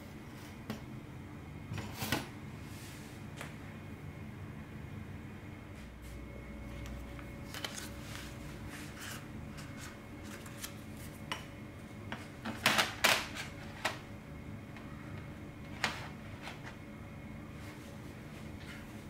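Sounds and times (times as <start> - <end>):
aluminium sheet crinkling and crackling: 6.8 - 11.4.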